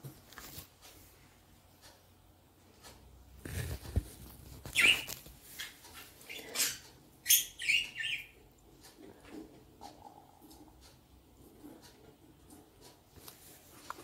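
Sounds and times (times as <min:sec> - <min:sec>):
small bird chirping: 0:04.6 - 0:08.4.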